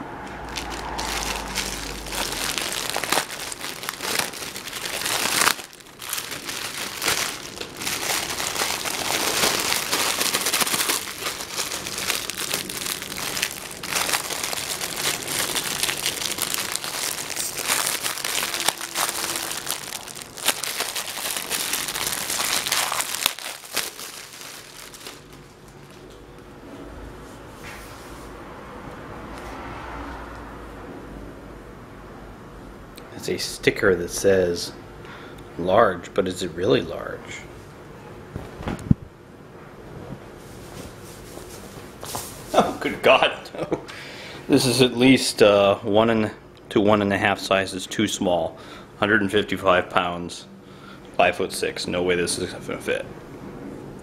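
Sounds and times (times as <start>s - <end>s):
plastic bag crinkling: 0.5s - 26.2s
poly mailer envelope tearing: 0.6s - 25.6s.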